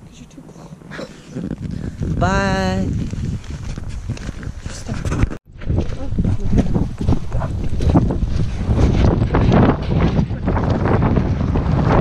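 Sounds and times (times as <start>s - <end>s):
footsteps on gravel: 1.5s - 10.8s.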